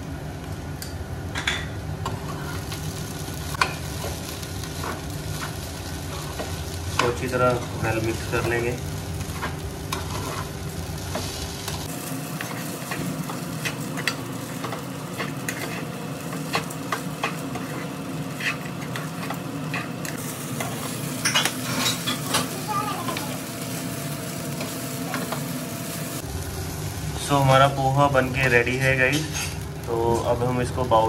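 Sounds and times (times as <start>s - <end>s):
low sizzle in frying pan: 0.0s - 31.0s
spatula scraping and knocking pan: 9.3s - 10.5s, 12.4s - 23.2s.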